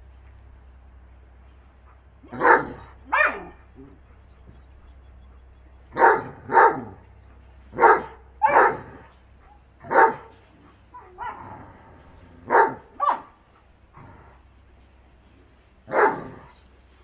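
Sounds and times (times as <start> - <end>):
dog barking: 2.3 - 3.6, 6.0 - 7.0, 7.8 - 9.0, 9.8 - 10.3, 12.5 - 13.4, 15.9 - 16.4.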